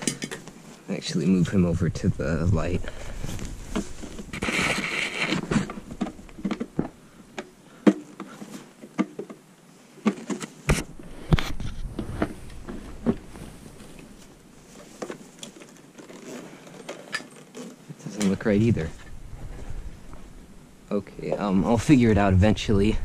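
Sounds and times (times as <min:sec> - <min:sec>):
clicks and knocks of prop handled: 0:00.0 - 0:00.5
cloth rustling: 0:02.2 - 0:07.0, 0:09.8 - 0:20.7.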